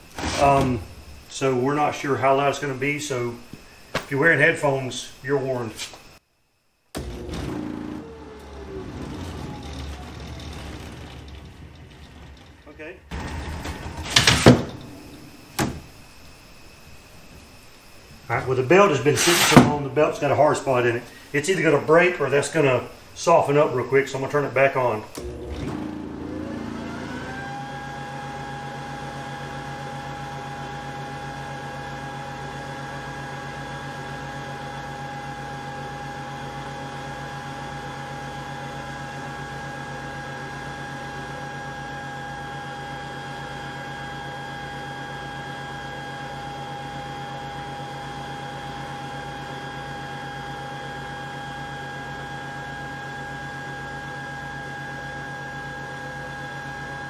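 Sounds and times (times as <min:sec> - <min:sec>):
belt-driven blower whining: 0:00.0 - 0:05.1, 0:07.0 - 0:57.0.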